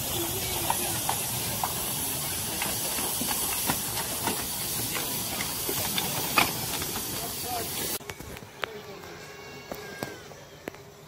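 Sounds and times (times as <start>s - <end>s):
steam hissing: 0.0s - 8.0s.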